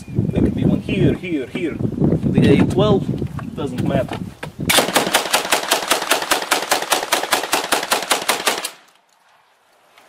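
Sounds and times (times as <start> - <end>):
automatic shotgun burst: 4.7 - 8.9.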